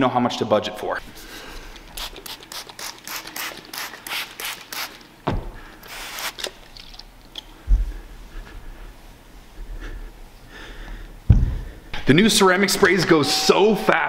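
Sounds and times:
spray bottle hissing: 0:01.9 - 0:05.0, 0:05.8 - 0:06.6
dull thump: 0:05.2 - 0:05.6.

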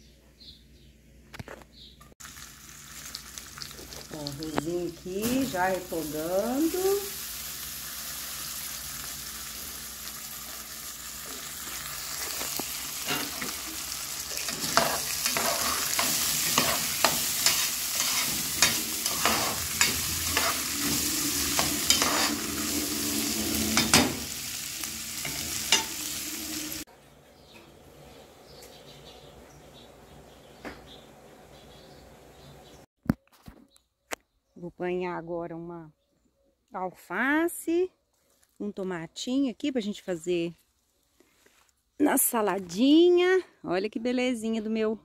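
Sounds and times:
rice sizzling in a pan: 0:02.2 - 0:26.9
spoon scraping a pan: 0:11.6 - 0:24.6, 0:25.2 - 0:26.7.

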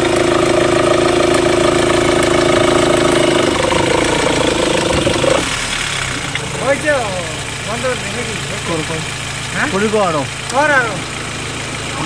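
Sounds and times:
car engine running: 0:00.0 - 0:12.0
belt drive whine: 0:02.3 - 0:06.6.

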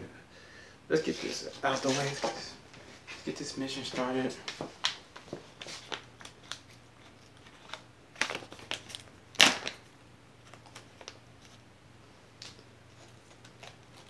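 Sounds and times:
packaging crinkling: 0:04.6 - 0:11.6, 0:12.4 - 0:14.0.

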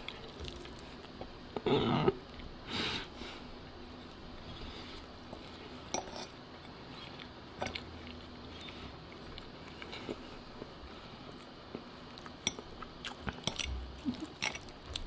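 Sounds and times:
fork scraping on plate: 0:05.9 - 0:06.4.

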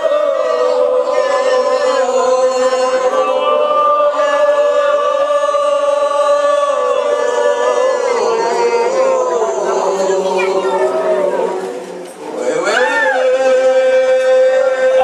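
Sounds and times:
crowd chanting: 0:00.0 - 0:15.0.

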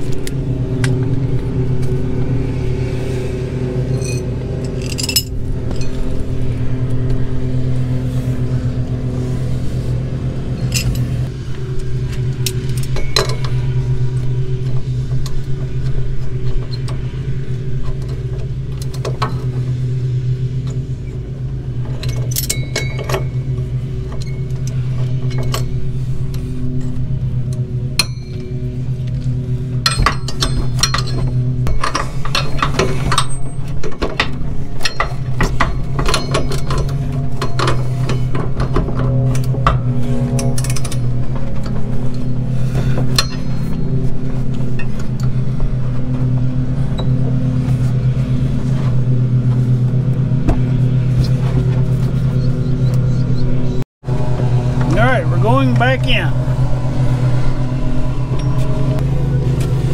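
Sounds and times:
small engine droning: 0:00.0 - 0:59.9
metal tools clinking: 0:03.9 - 0:06.1, 0:10.5 - 0:11.3, 0:22.0 - 0:25.8, 0:29.8 - 0:39.6.

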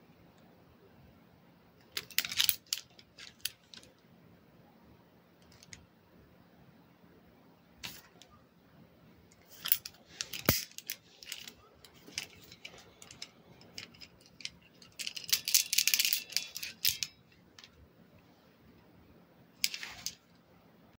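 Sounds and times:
handcuff chain clinking and rattling: 0:01.9 - 0:03.9, 0:09.4 - 0:17.8, 0:19.6 - 0:20.2.

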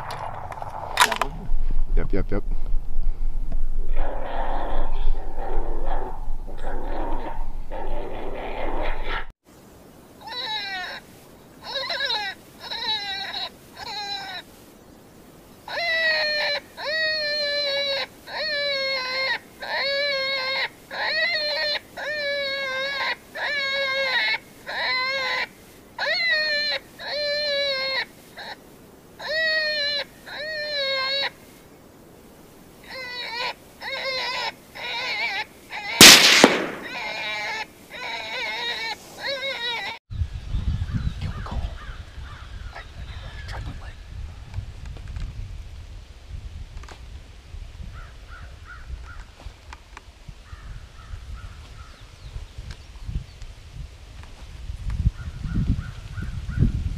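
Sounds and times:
high wavering animal cries: 0:10.2 - 0:14.5, 0:15.7 - 0:28.6, 0:29.2 - 0:31.4, 0:32.8 - 0:40.0
bleating distress cries: 0:32.8 - 0:40.0
rifle shot: 0:36.0 - 0:37.5.

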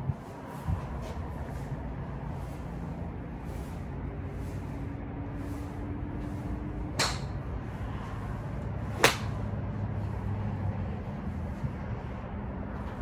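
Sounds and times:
low rumble of wind: 0:00.0 - 0:13.0
golf club striking ball: 0:06.9 - 0:07.4, 0:09.0 - 0:09.4.

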